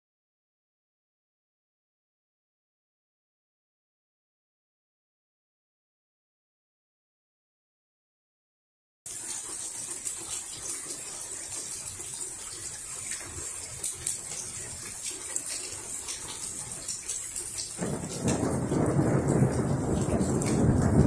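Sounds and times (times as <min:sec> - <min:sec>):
rain hiss: 0:09.1 - 0:21.0
raindrop ticks: 0:09.3 - 0:21.0
thunder rumble: 0:17.7 - 0:21.0.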